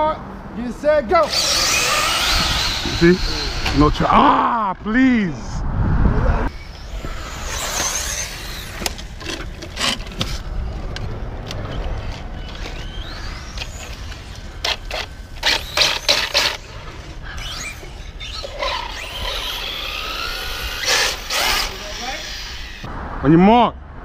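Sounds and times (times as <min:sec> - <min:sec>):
electric motor whining: 0:01.2 - 0:04.1, 0:06.5 - 0:10.4, 0:12.0 - 0:22.9
toy car clicks and knocks on asphalt: 0:07.1 - 0:16.6.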